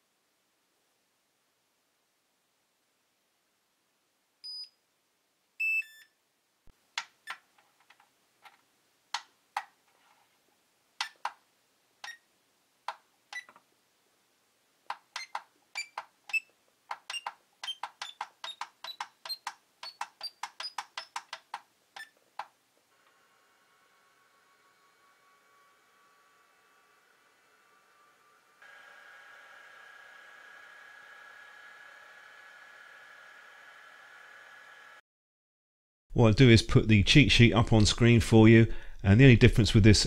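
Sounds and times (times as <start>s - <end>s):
keypad button clicks with beeps: 15.2s - 16.4s.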